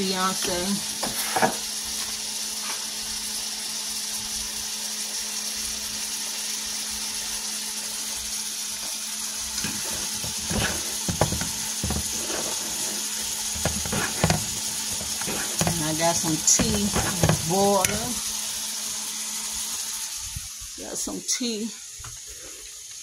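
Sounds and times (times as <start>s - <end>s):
eggs sizzling in a frying pan: 0.0s - 23.0s
spatula scraping a pan: 9.6s - 18.2s.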